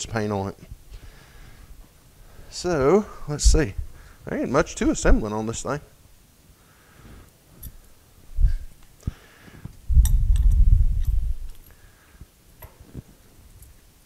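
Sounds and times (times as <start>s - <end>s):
low rumble: 9.9s - 11.6s.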